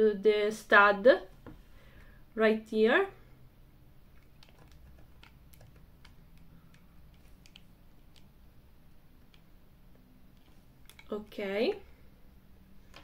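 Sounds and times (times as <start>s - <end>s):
plastic sunglasses clicking: 4.1s - 8.4s, 10.3s - 11.2s.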